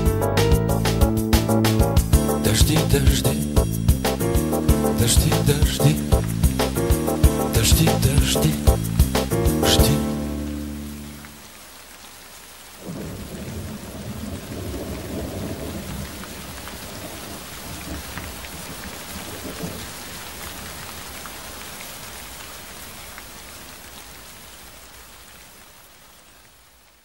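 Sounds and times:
heavy rain: 0.0 - 27.0
thunder rumbling: 12.8 - 19.8.

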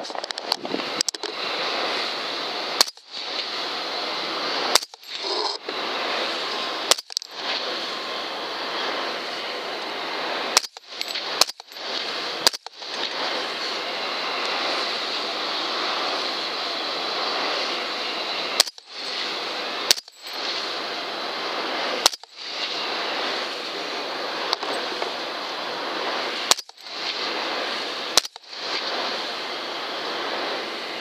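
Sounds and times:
steady hiss: 0.0 - 31.0
suppressed rifle shots: 2.8 - 3.1, 4.7 - 5.0, 10.5 - 11.7, 12.4 - 12.8, 19.9 - 20.2, 22.0 - 22.3, 26.5 - 26.8, 28.1 - 28.4.

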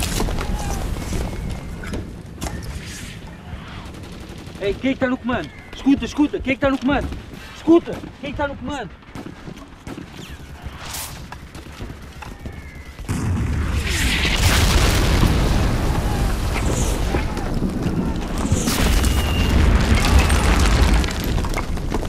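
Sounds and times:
explosion blasts: 13.1 - 22.0.

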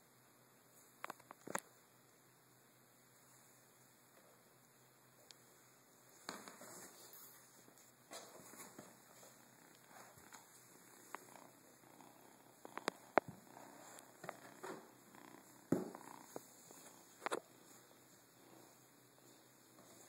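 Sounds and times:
kitten purring: 9.3 - 17.6.

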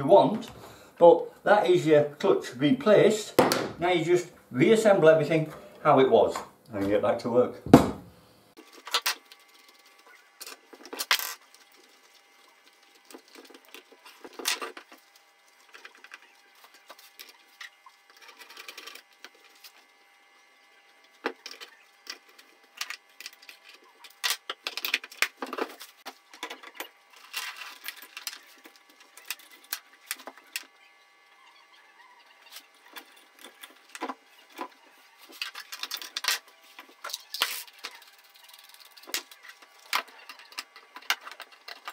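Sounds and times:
metal and plastic parts clicking: 37.0 - 41.9.

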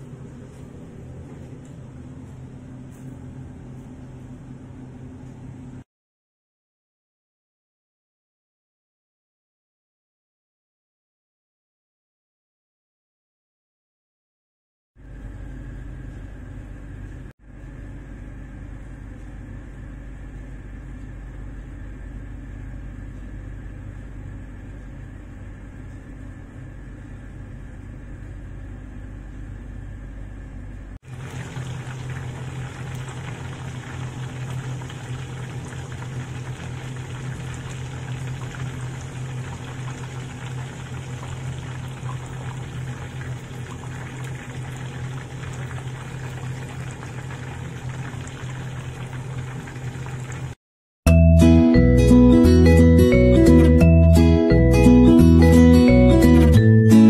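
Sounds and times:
low background hum: 0.0 - 5.8, 15.0 - 50.6
chicken frying in hot oil: 31.0 - 50.6.

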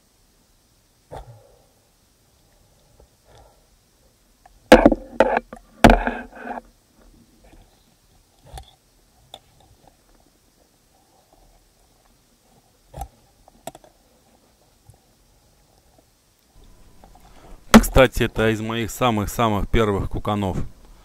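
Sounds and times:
rough scrape: 4.7 - 6.7
sharp underwater knocks: 17.8 - 18.0.

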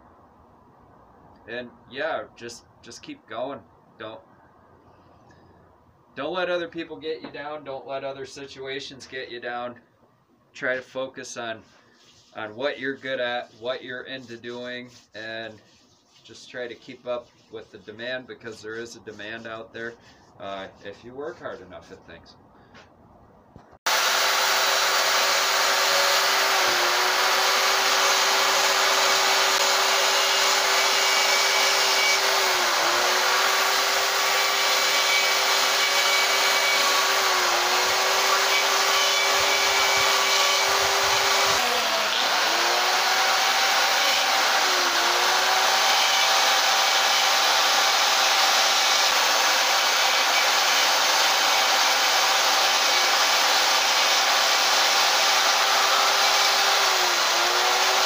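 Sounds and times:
small chainsaw cutting wood: 23.9 - 58.0.

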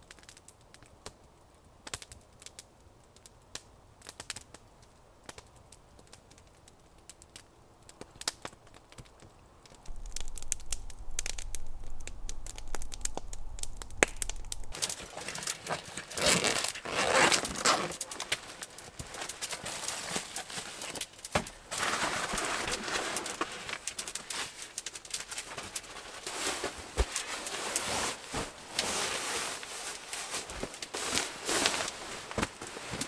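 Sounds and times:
campfire crackling: 0.0 - 33.0
low rumble: 9.9 - 14.8
plastic bag rustling: 9.9 - 33.0.

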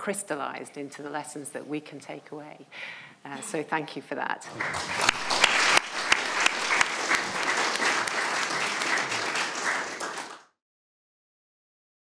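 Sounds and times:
audience applauding: 4.4 - 10.6.

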